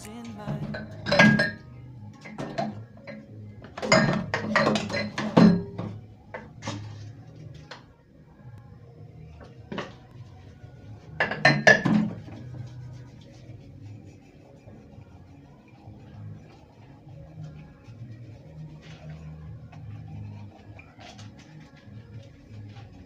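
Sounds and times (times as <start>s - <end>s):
dishes clinking in metal sink: 0.6s - 1.6s, 3.8s - 5.9s, 11.2s - 12.2s.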